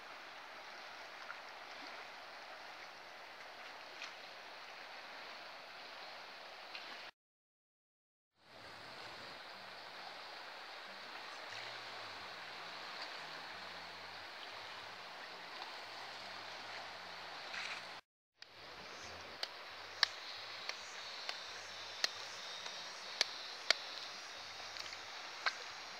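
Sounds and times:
river water rushing: 0:08.5 - 0:18.0.

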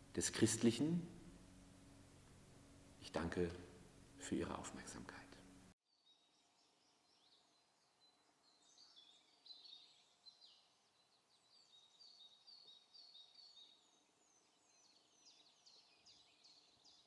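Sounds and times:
faint bird chirps: 0:04.7 - 0:17.0.

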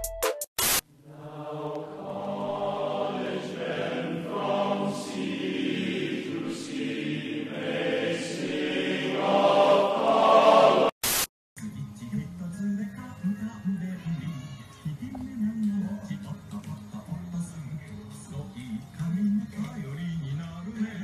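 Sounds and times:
short sharp noise burst: 0:00.6 - 0:00.9, 0:11.0 - 0:11.3
choral singing: 0:01.0 - 0:11.0.

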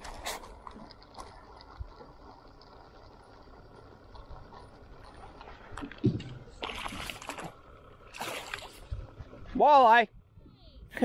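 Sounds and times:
fish splashing at the surface: 0:06.1 - 0:08.9.

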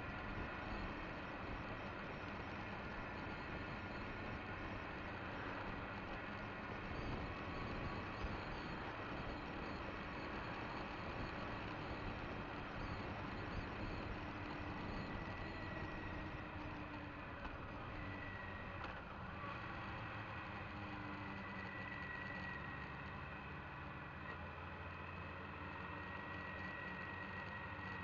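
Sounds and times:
faint high whine: 0:00.0 - 0:18.8.

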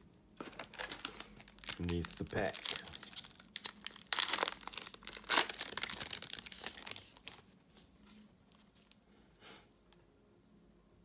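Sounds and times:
foil wrapper crinkling and tearing: 0:00.4 - 0:09.0.

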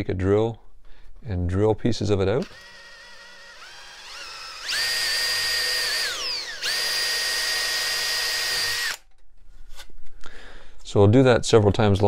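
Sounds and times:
cordless drill boring into wood: 0:02.4 - 0:09.0.

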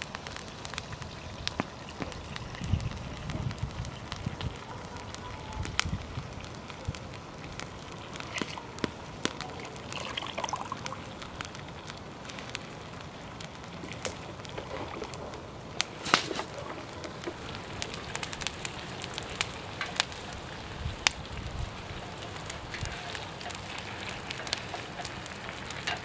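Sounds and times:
wood fire crackling: 0:00.0 - 0:26.0
liquid pouring into metal pot: 0:09.8 - 0:11.0
wooden spatula stirring: 0:16.0 - 0:20.7, 0:21.7 - 0:26.0.

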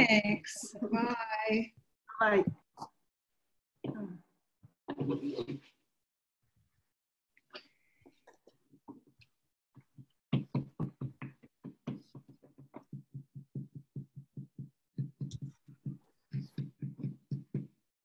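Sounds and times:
stencil brush tapping on paper: 0:09.8 - 0:17.8.

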